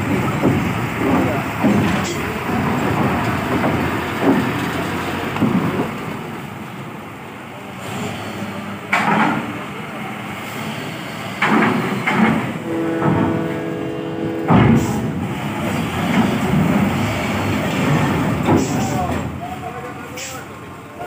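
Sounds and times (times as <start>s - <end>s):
clanks on steel ramp: 0.0s - 5.9s, 11.4s - 19.3s
heavy truck engine running: 0.0s - 21.0s.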